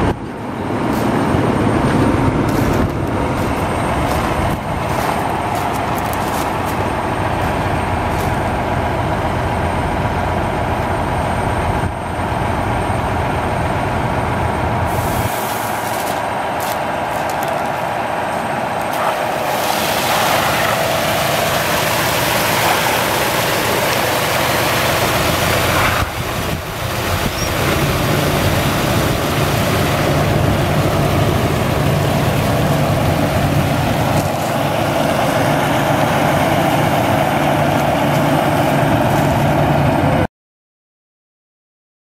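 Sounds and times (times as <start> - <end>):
diesel truck engine running: 0.0 - 40.3
water spraying onto gravel: 2.5 - 8.6, 14.9 - 17.9, 18.8 - 39.4.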